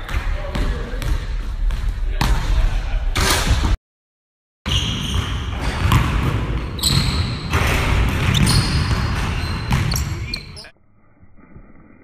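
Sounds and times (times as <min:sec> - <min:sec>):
basketball bouncing on hardwood floor: 0:05.1 - 0:10.1.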